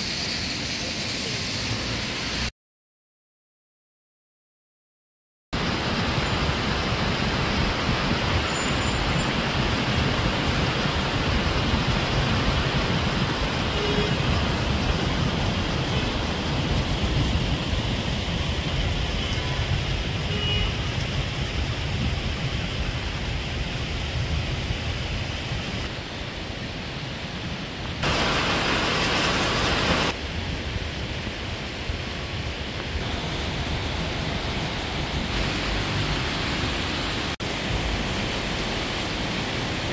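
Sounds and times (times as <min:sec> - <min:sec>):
rain: 0:00.0 - 0:02.5, 0:05.6 - 0:39.9
fast-flowing floodwater: 0:05.6 - 0:39.9.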